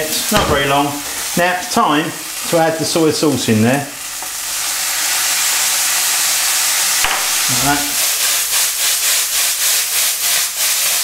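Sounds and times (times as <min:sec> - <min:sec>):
sauce sizzling in frying pan: 0:00.0 - 0:11.0
single knock: 0:07.0 - 0:07.3.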